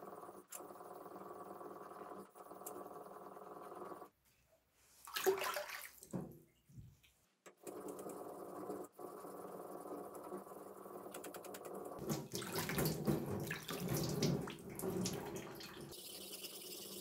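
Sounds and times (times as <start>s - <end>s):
water splashing onto whetstone: 5.1s - 6.1s, 12.0s - 15.8s.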